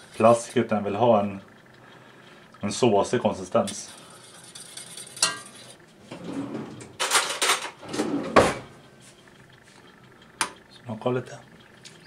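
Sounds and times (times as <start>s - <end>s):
utensils rattling and knocking: 6.7s - 7.9s.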